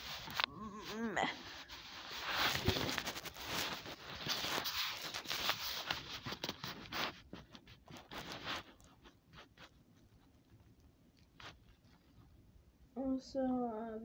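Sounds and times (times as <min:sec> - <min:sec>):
microphone handling scratches: 0:00.0 - 0:09.8.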